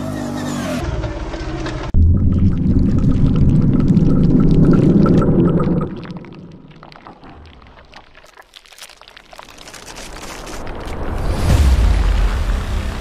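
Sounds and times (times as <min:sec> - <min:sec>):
low rumbling sound effect: 0:01.7 - 0:07.7.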